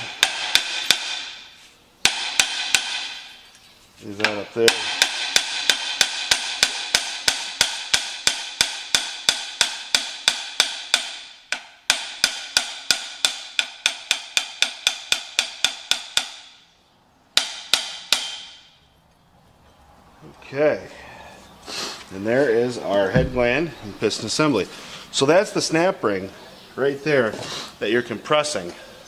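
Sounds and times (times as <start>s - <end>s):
hammer striking metal: 0.0s - 3.4s, 4.2s - 16.6s, 17.4s - 18.8s.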